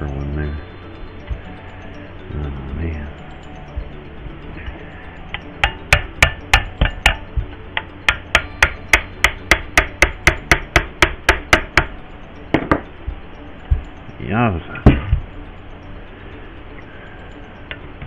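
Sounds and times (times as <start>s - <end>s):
tool tapping on metal: 5.3s - 13.9s.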